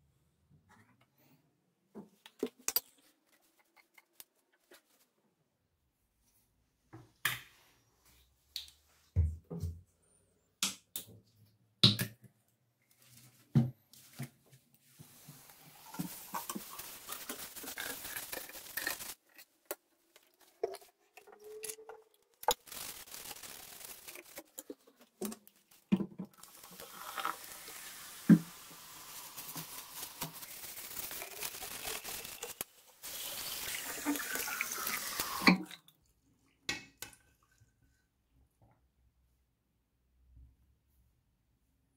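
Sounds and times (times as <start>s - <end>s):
water running into basin: 15.1s - 19.2s, 20.4s - 36.0s.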